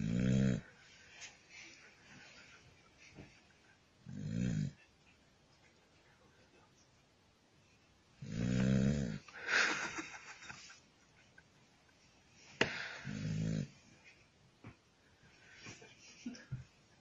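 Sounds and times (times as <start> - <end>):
dog snoring: 0.0 - 0.7, 4.1 - 4.8, 8.2 - 9.2, 13.0 - 13.8.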